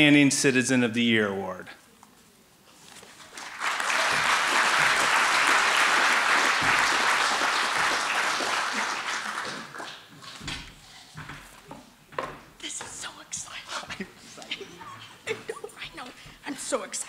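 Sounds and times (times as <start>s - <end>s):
audience applauding: 3.2s - 10.1s.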